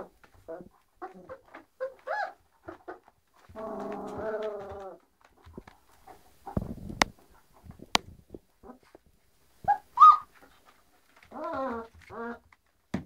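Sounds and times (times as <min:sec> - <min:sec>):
puppy whining cry: 0:00.5 - 0:02.4, 0:09.6 - 0:10.3, 0:11.3 - 0:12.4
puppies whimpering: 0:09.7 - 0:10.3.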